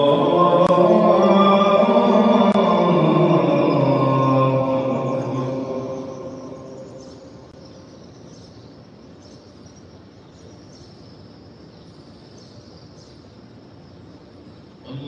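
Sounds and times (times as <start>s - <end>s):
chanted recitation over loudspeakers: 0.0s - 8.6s, 14.8s - 15.0s
courtyard background hush: 0.0s - 15.0s.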